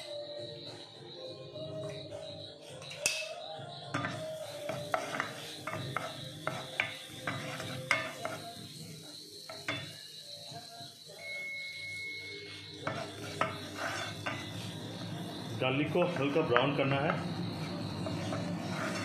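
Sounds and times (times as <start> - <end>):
wooden spoon scraping a pan: 4.0 - 8.6, 12.8 - 14.8, 17.6 - 19.0.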